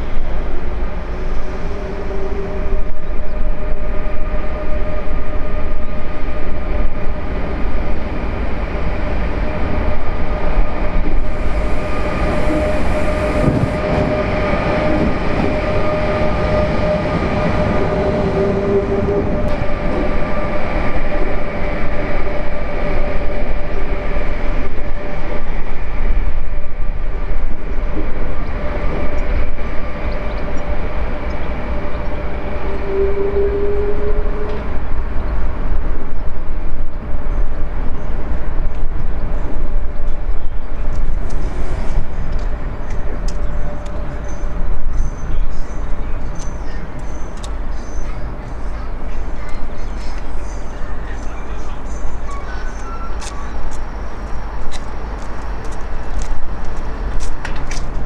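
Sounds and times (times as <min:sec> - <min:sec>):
locomotive whine: 0:00.0 - 0:58.0
heavy low rumble: 0:06.8 - 0:37.1.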